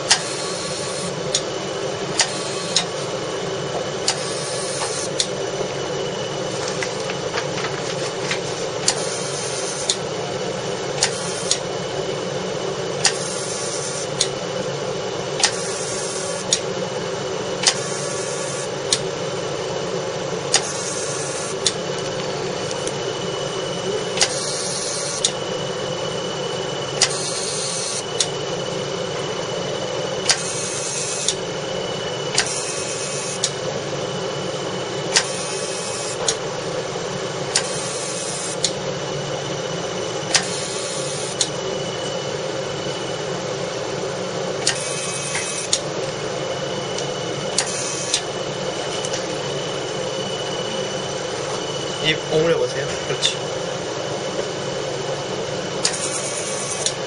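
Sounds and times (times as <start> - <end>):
machine hum: 0.0 - 57.0
laser sharp click: 35.1 - 36.4, 40.3 - 40.7.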